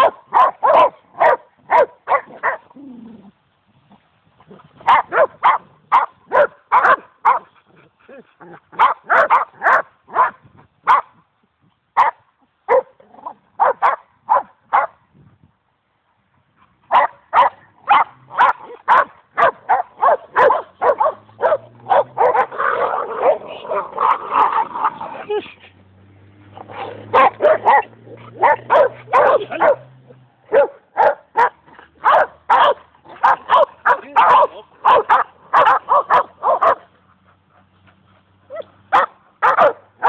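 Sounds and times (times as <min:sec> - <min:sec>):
dogs barking: 0:00.0 - 0:02.7, 0:04.8 - 0:07.5, 0:08.7 - 0:11.1, 0:12.0 - 0:13.0, 0:13.6 - 0:15.0, 0:16.9 - 0:25.0, 0:26.5 - 0:37.3, 0:38.5 - 0:40.0.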